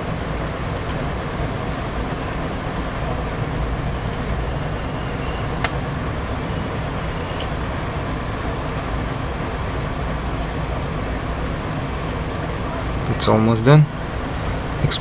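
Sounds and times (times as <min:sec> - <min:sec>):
low background rumble and hiss: 0:00.0 - 0:15.0.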